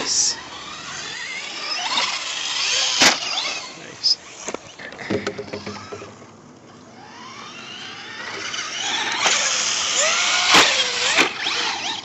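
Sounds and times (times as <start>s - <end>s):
rc car electric motor whining: 0.0s - 12.0s
car knocking on dirt: 5.0s - 6.3s.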